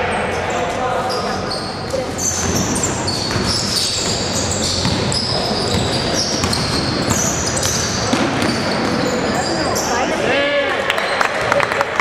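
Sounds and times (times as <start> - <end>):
sneakers squeaking on hardwood: 1.0 - 10.1
basketball bouncing: 2.4 - 9.5.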